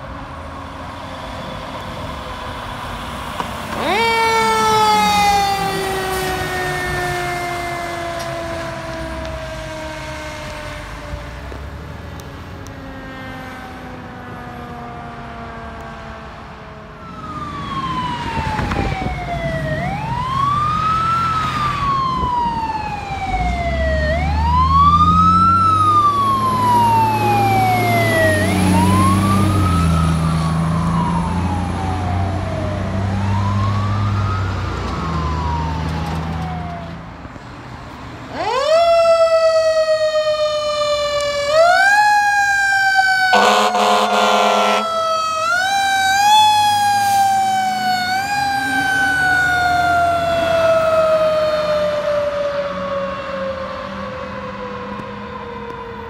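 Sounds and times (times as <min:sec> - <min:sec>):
fire truck siren wailing: 0:00.0 - 0:56.0
truck engine rumble: 0:16.8 - 0:53.0.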